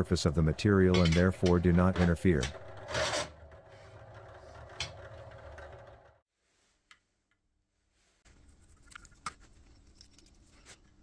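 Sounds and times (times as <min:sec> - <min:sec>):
drill press motor hum: 0:02.0 - 0:06.2.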